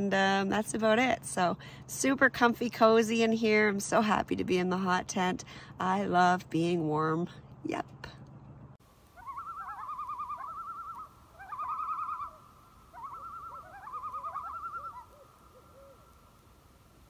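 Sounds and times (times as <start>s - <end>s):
bird trilled call: 9.2s - 16.1s.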